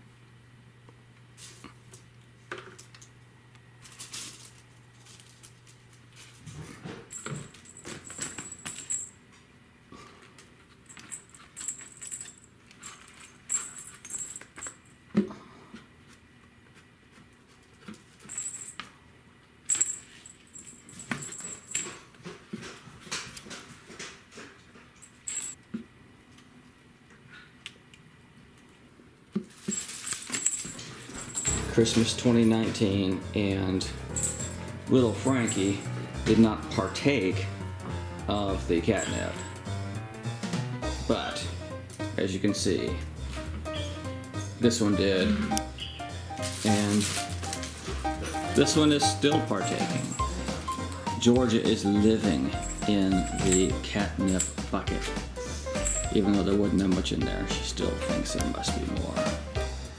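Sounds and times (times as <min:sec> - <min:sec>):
cats rustling paper toys: 0:03.8 - 0:09.0, 0:29.3 - 0:32.6, 0:46.3 - 0:51.2.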